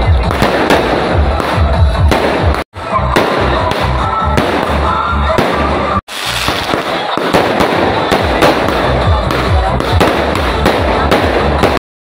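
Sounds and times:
background music with steady beat: 0:00.0 - 0:02.6, 0:06.8 - 0:11.8
fireworks bangs and crackling: 0:00.0 - 0:11.8.

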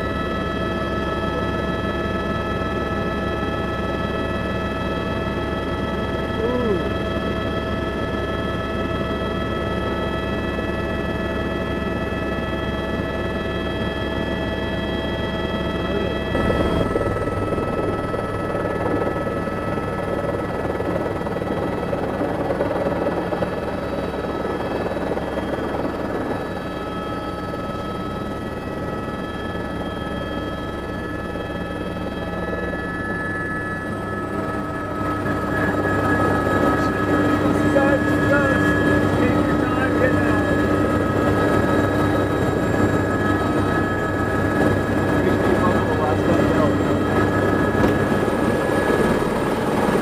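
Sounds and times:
helicopter engine and rotors: 0:00.0 - 0:50.0.

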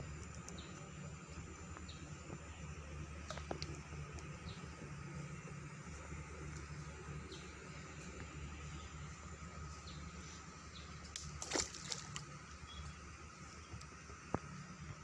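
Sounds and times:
shallow water sloshing: 0:11.4 - 0:12.2
short water splash: 0:11.4 - 0:12.2.

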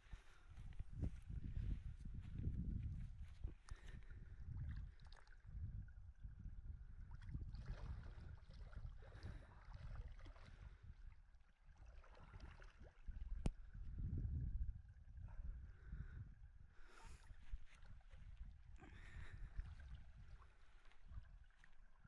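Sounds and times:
wind rumble on microphone: 0:00.0 - 0:22.0
water sloshing and splashing: 0:03.3 - 0:05.8, 0:06.9 - 0:14.0, 0:16.8 - 0:22.0.

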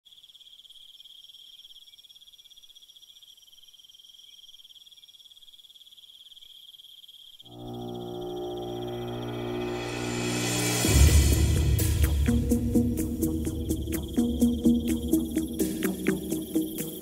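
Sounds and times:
insects trilling: 0:00.1 - 0:11.0, 0:12.3 - 0:17.0
background music: 0:07.5 - 0:17.0.

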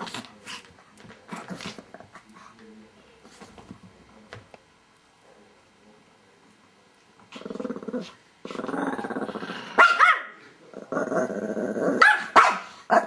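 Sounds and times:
small dogs growling: 0:07.2 - 0:09.8, 0:10.6 - 0:12.1
dog barking sharply: 0:12.0 - 0:12.7.

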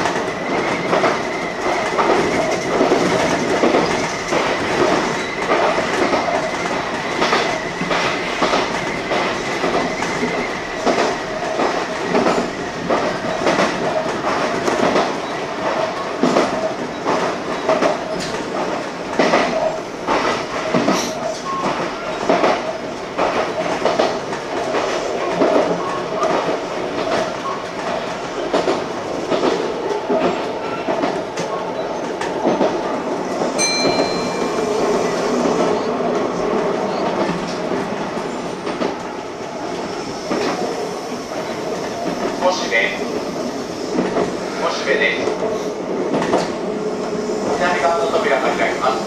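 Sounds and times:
wheels clacking over rail joints: 0:00.0 - 0:39.1
high-pitched tone: 0:33.6 - 0:34.7.

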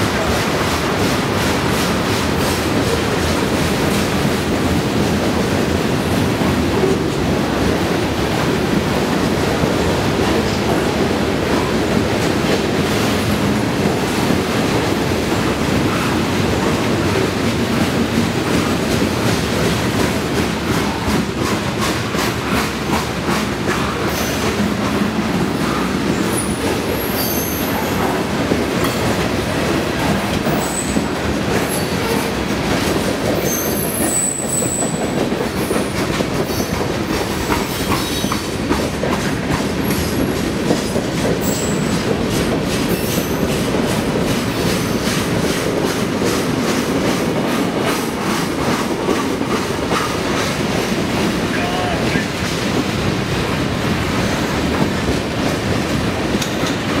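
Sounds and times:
clickety-clack over rail joints: 0:00.0 - 0:57.0
train wheels rumbling on rails: 0:00.0 - 0:57.0
high wheel squeals: 0:26.3 - 0:27.9.

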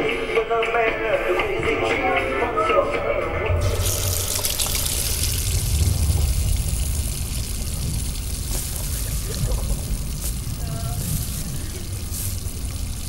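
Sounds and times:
tap water running: 0:03.6 - 0:13.0.

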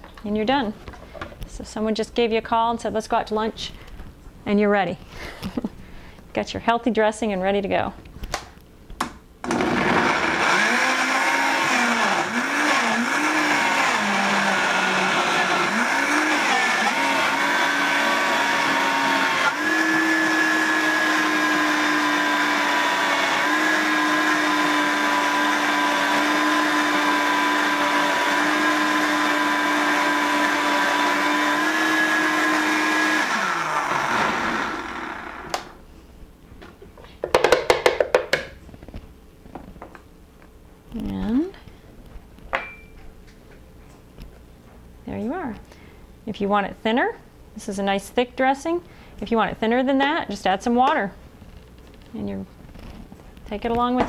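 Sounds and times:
blender motor whining: 0:09.4 - 0:35.8.

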